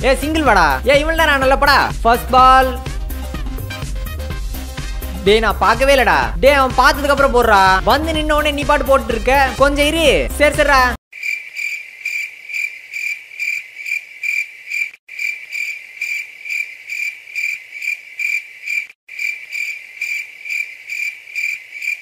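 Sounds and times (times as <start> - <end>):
cricket chirping: 11.2 - 22.0.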